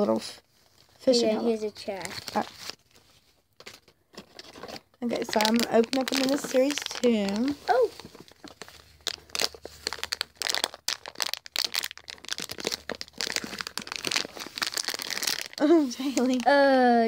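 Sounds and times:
plastic bag crinkling: 0:01.8 - 0:16.7
plastic bag tearing open: 0:02.0 - 0:02.9, 0:05.1 - 0:16.5.

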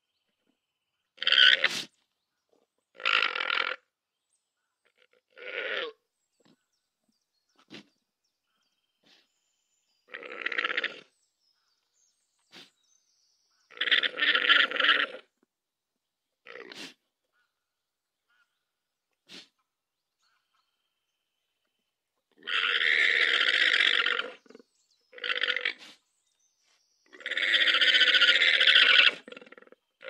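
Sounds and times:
alpaca raspy calls: 0:01.2 - 0:01.9, 0:03.0 - 0:03.9, 0:04.9 - 0:06.0, 0:10.1 - 0:11.1, 0:13.7 - 0:15.3, 0:22.4 - 0:26.0, 0:27.1 - 0:29.8.

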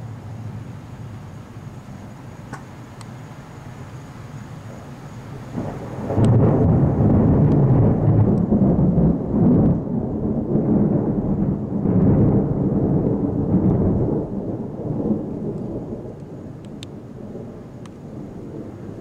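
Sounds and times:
thunder rumbling: 0:05.3 - 0:19.0.

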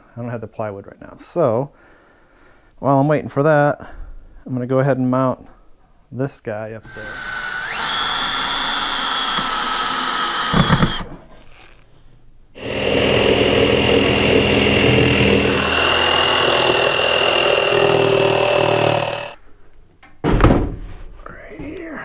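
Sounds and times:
cordless drill driving screws: 0:06.8 - 0:11.8, 0:12.6 - 0:19.4
power tool whining: 0:06.8 - 0:11.8, 0:12.6 - 0:19.4.

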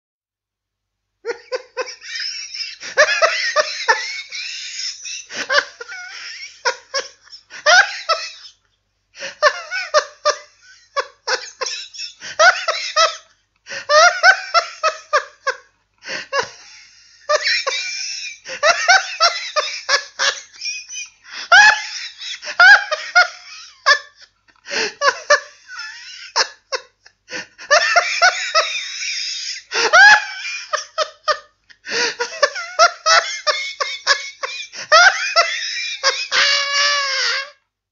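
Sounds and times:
person laughing wildly: 0:01.2 - 0:08.6, 0:09.2 - 0:37.6.

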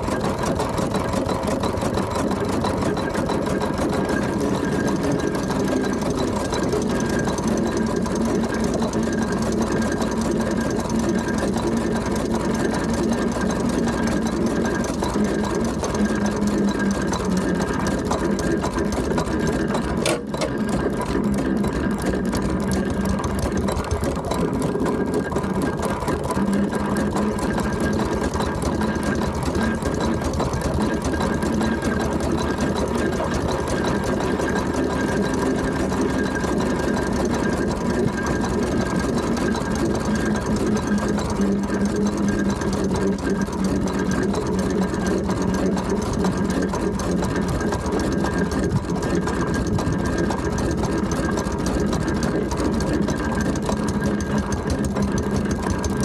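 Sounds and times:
constant engine tones: 0:00.0 - 0:56.0
steam engine mechanical clatter: 0:00.0 - 0:56.0.

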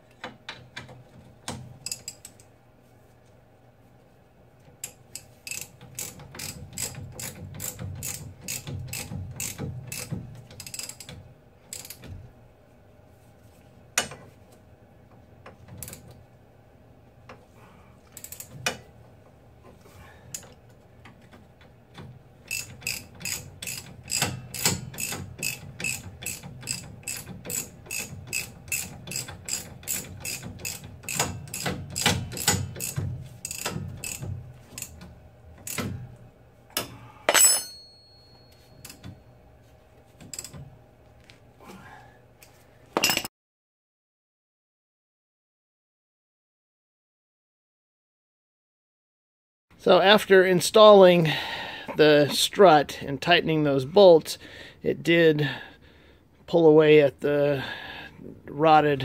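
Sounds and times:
socket ratchet clicking: 0:22.5 - 0:34.2.

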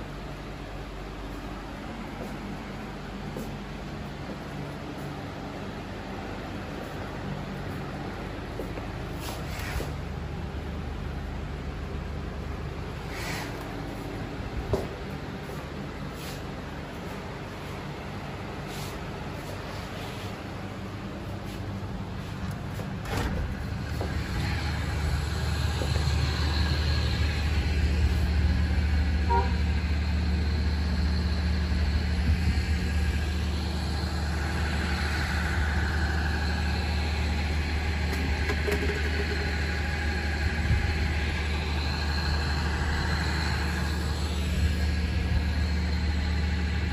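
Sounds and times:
low droning hum: 0:00.0 - 0:46.9.

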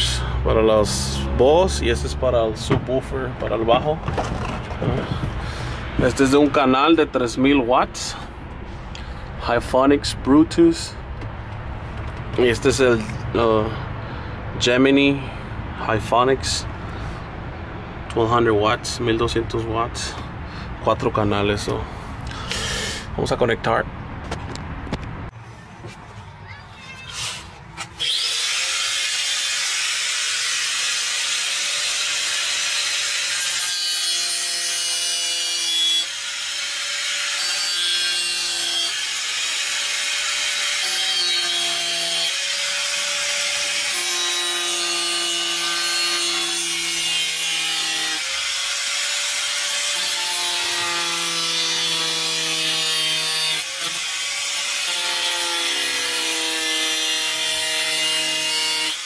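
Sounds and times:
angle grinder cutting metal: 0:27.9 - 0:59.0.

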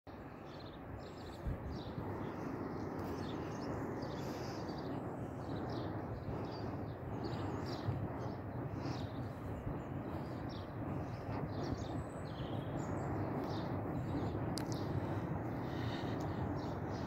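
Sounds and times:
low outdoor rumble: 0:00.2 - 0:17.0
birds chirping and singing: 0:00.5 - 0:17.0.

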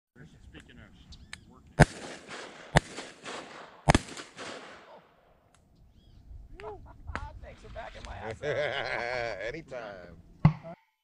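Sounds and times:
shotgun blasts with echo: 0:01.8 - 0:05.2.

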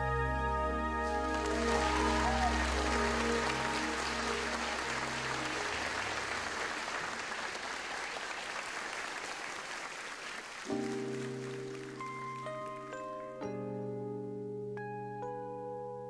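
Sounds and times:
sustained musical chord: 0:00.0 - 0:06.9
audience applauding: 0:01.0 - 0:13.1.

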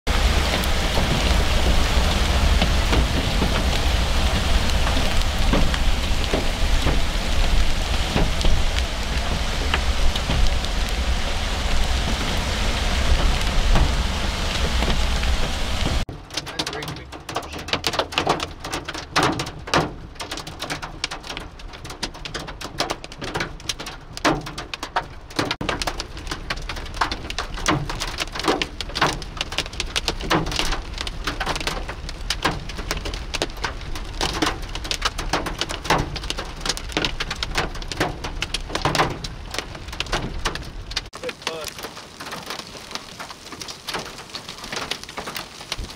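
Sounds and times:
hailstones pelting a vehicle: 0:00.1 - 0:45.9
low road rumble: 0:00.1 - 0:45.9.

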